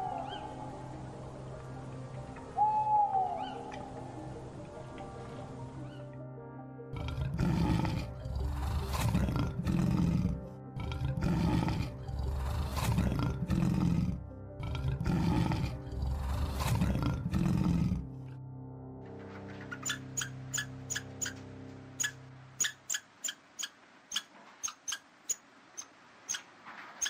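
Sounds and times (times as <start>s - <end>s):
background music: 0.0s - 23.0s
lion roaring: 6.9s - 18.2s.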